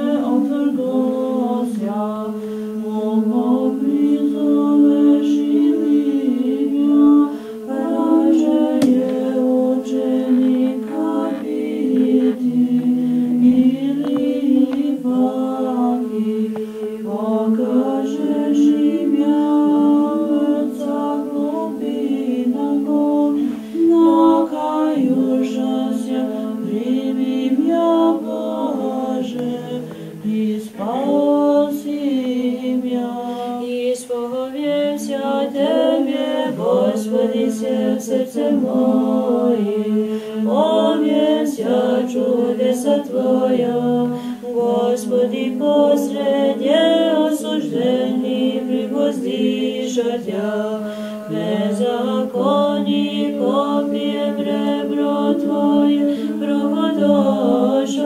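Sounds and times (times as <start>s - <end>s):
women singing unaccompanied chant: 0.0s - 58.0s.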